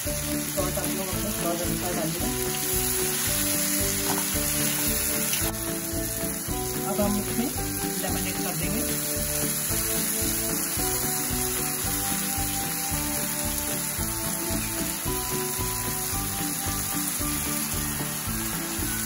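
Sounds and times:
background music with melody: 0.0 - 19.0
vegetables sizzling in a frying pan: 0.0 - 19.0.

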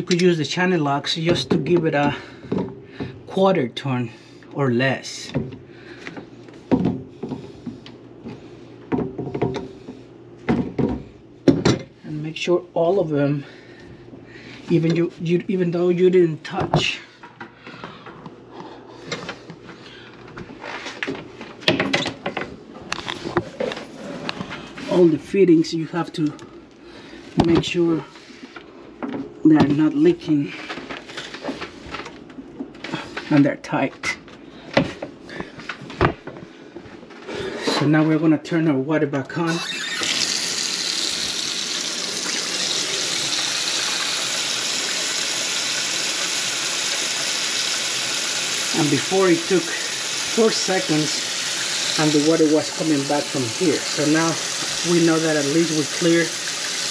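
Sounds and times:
faucet water splashing into sink: 39.6 - 56.9.

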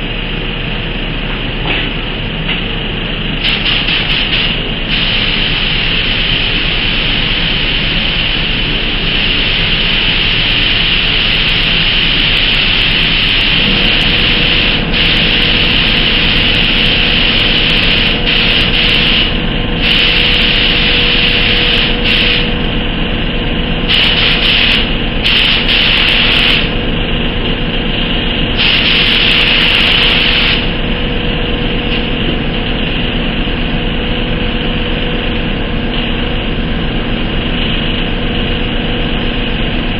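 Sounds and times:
steady mechanical hum: 0.0 - 39.9
paint spray gun hissing: 3.4 - 22.6, 23.9 - 26.8, 28.5 - 30.7.

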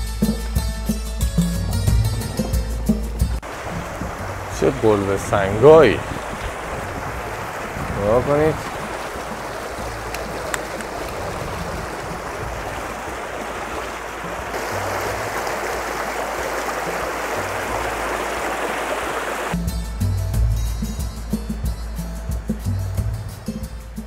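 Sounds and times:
music: 0.0 - 5.9, 9.8 - 11.8, 19.5 - 24.0
stream flowing over stones: 3.4 - 19.6.

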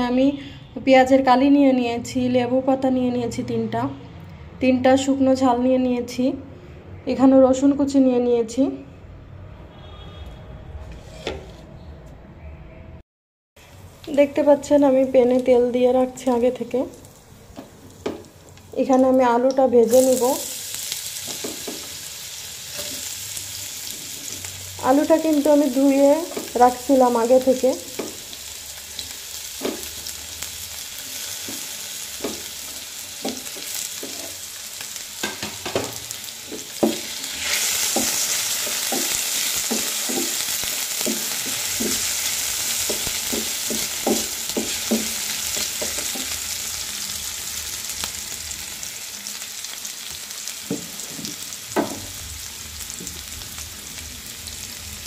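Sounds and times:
wooden spatula scraping pan: 10.8 - 11.7
potatoes sizzling in oil: 13.6 - 55.0.

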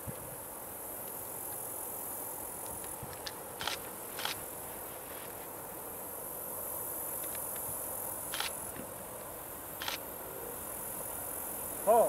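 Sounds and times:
short insect chirps: 6.0 - 8.8, 9.6 - 10.2.

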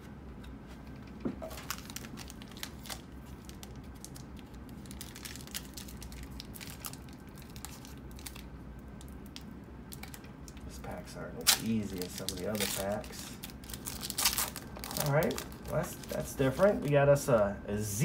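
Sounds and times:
foil wrapper tearing and crinkling: 1.5 - 10.2, 11.4 - 16.9.

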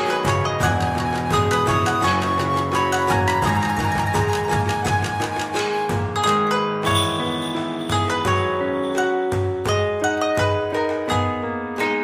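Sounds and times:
background music with steady beat: 0.0 - 11.2.

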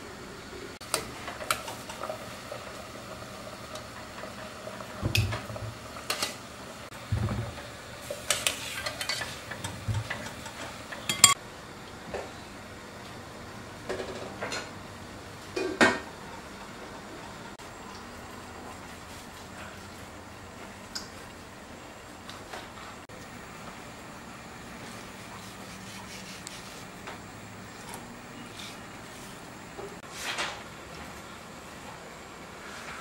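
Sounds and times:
wire skimmer clinking against pots: 8.2 - 11.4
pot lid clink: 11.1 - 11.4.

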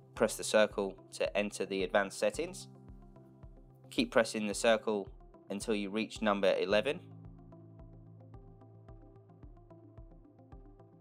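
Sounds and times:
electronic music with steady beat: 0.1 - 11.0.

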